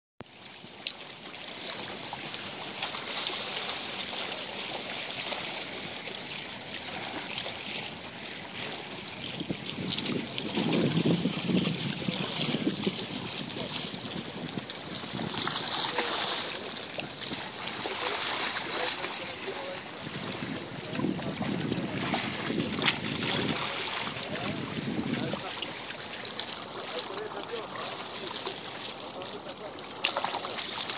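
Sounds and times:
sea water lapping on rocks: 0:00.2 - 0:30.9
wind on microphone: 0:09.0 - 0:16.3, 0:19.2 - 0:25.8.

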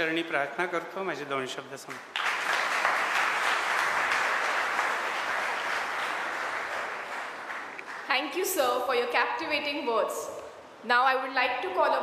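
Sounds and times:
audience applause: 0:02.1 - 0:08.1.

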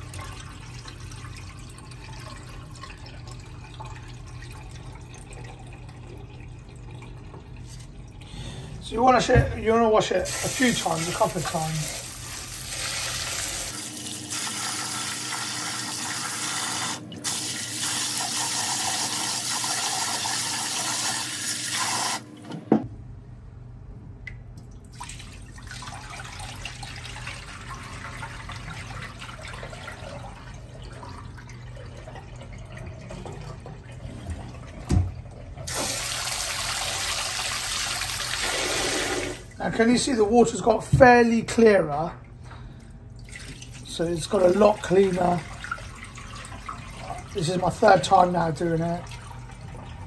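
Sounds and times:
rinse water poured into sink: 0:10.1 - 0:22.2, 0:24.9 - 0:39.6.

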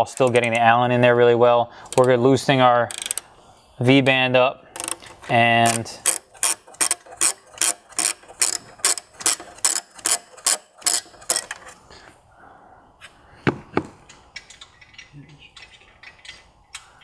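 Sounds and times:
hand ratchet clicking: 0:02.9 - 0:03.2, 0:04.8 - 0:11.8.

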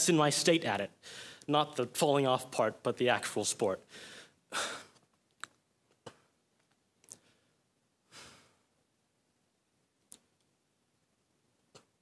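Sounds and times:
person breathing: 0:01.0 - 0:01.5, 0:03.9 - 0:05.0, 0:07.1 - 0:08.7.

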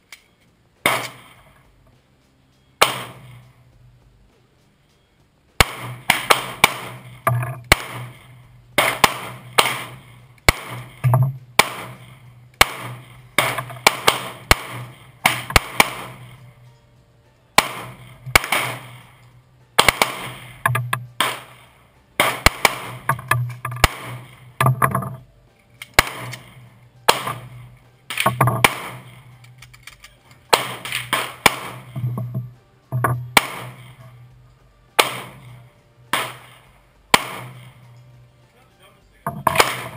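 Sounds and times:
handgun shots: 0:00.8 - 0:01.4, 0:02.8 - 0:03.4, 0:05.6 - 0:08.2, 0:08.8 - 0:16.4, 0:17.6 - 0:19.1, 0:19.8 - 0:21.6, 0:22.2 - 0:24.3, 0:25.8 - 0:26.5, 0:27.1 - 0:29.1, 0:30.5 - 0:32.1, 0:33.4 - 0:33.9, 0:35.0 - 0:37.7, 0:39.4 - 0:39.9.

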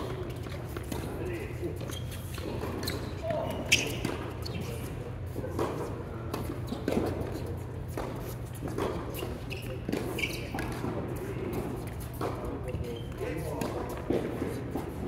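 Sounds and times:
steady low hum: 0:00.0 - 0:15.0
tennis ball hit and bouncing: 0:02.4 - 0:04.4, 0:05.5 - 0:12.6.

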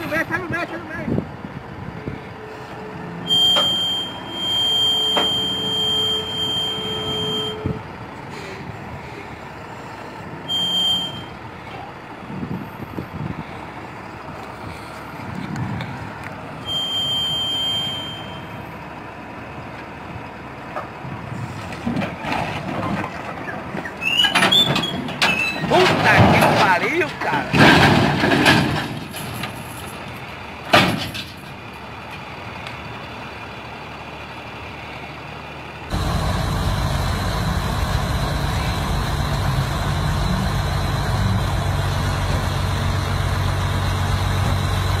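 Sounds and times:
tow truck engine rumbling: 0:00.0 - 0:45.0
high warning tone: 0:03.2 - 0:07.8, 0:16.6 - 0:18.6.

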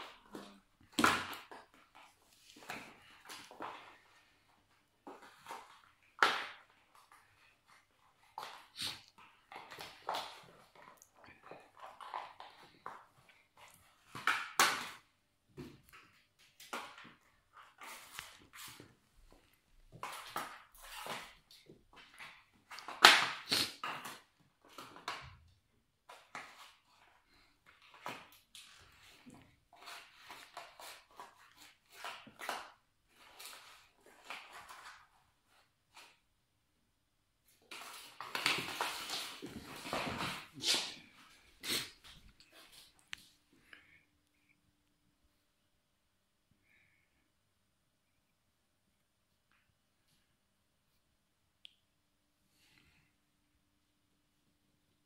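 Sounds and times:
cardboard pack skidding on wooden floor: 0:37.7 - 0:41.8.

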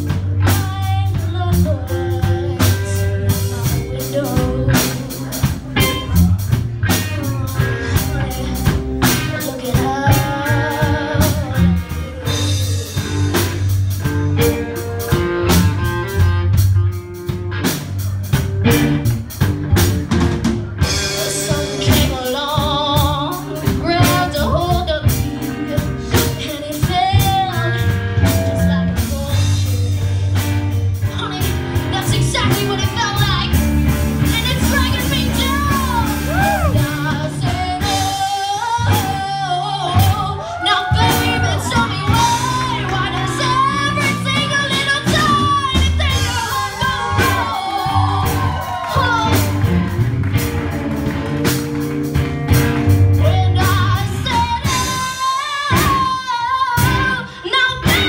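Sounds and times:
girl singing: 0:00.0 - 0:06.2, 0:06.9 - 0:13.7, 0:21.1 - 0:33.6, 0:34.2 - 0:49.6, 0:53.2 - 0:58.0
bass line: 0:00.0 - 0:58.0
drum kit: 0:00.0 - 0:58.0
electric guitars: 0:00.0 - 0:58.0.

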